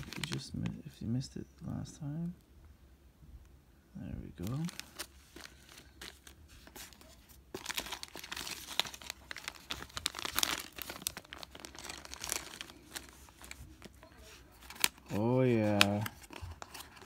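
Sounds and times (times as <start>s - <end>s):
plastic bag crinkling: 0.0s - 0.8s, 4.4s - 17.0s.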